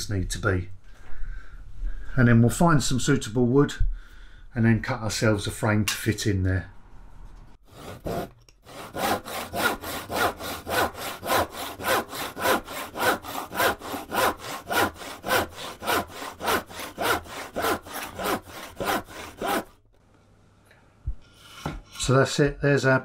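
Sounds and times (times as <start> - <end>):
hand saw cutting wood: 7.6 - 19.8.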